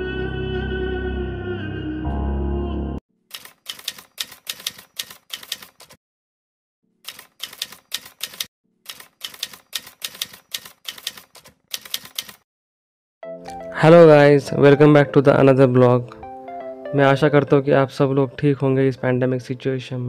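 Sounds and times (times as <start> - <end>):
background music: 0.0 - 3.0, 13.2 - 20.0
typewriter keystrokes clacking: 3.3 - 6.0, 7.1 - 12.4.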